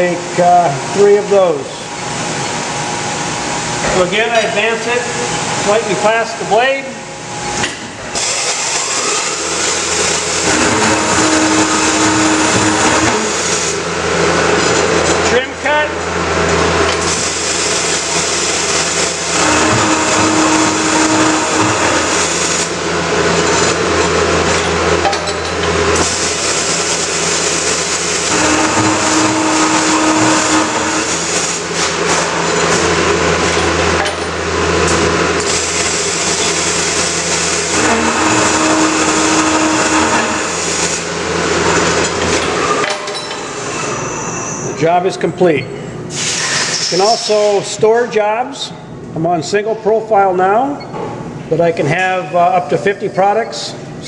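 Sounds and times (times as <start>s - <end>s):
cold saw cutting metal: 8.1s - 44.8s
saw motor hum: 8.2s - 25.1s, 25.7s - 42.6s.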